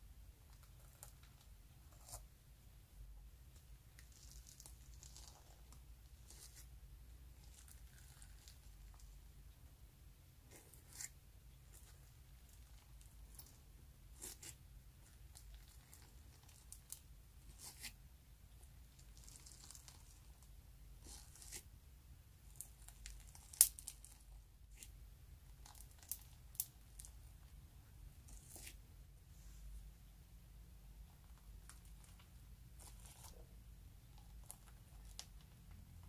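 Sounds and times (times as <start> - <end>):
slime crackling and tearing: 4.0 - 6.7, 7.4 - 9.0, 11.7 - 17.9, 19.0 - 21.6, 22.5 - 24.9, 25.6 - 27.2.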